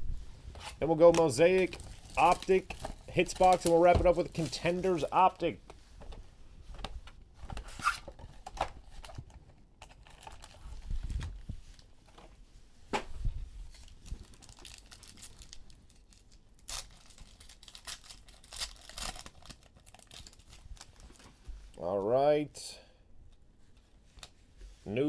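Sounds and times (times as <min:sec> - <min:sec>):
plastic wrapping tearing and crinkling: 0:00.9 - 0:05.0, 0:09.8 - 0:11.9, 0:13.7 - 0:21.3.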